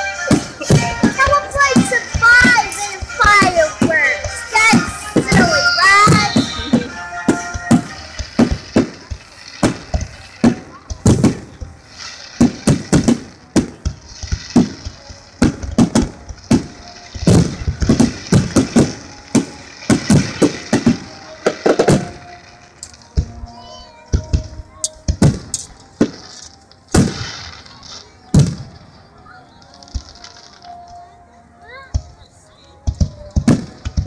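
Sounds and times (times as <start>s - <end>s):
steady hiss: 0.0s - 23.5s
fireworks bursting with loud bangs: 0.0s - 31.0s, 32.8s - 34.0s.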